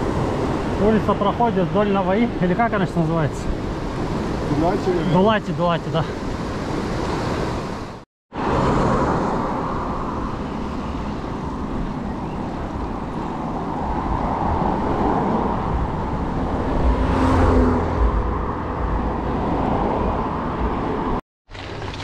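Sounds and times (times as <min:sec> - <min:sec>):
city road traffic: 0:00.0 - 0:21.2
wind buffeting microphone: 0:09.0 - 0:21.2
vehicle passing close: 0:13.4 - 0:21.2.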